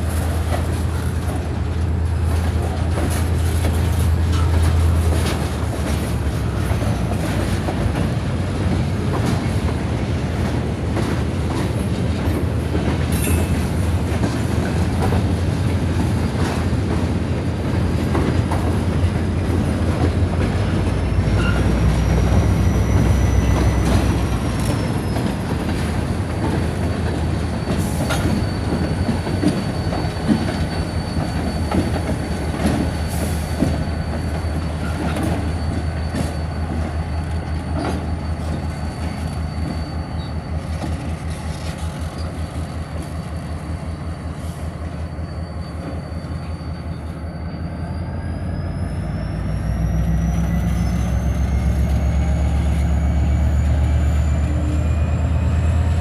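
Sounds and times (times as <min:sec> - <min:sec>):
diesel locomotive engine running: 0:00.0 - 0:56.0
high wheel squeal: 0:18.4 - 0:56.0.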